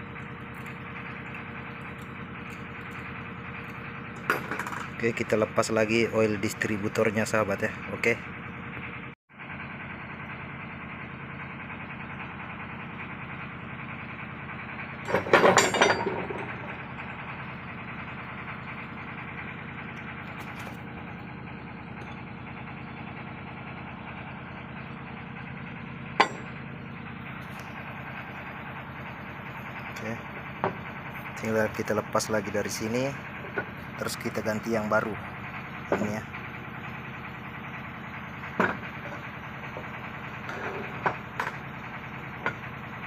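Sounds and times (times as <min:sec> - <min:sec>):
machine hum: 0:00.0 - 0:09.2, 0:11.8 - 0:43.0
metal parts clattering: 0:15.1 - 0:16.4.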